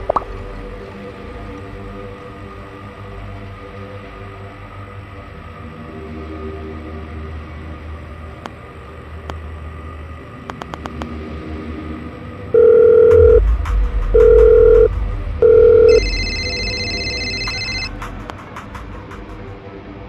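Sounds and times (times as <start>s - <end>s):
low music drone: 0.0s - 20.0s
loud low beeps: 12.6s - 13.4s, 14.2s - 17.9s
trilling phone ring: 12.6s - 13.4s, 14.2s - 17.9s.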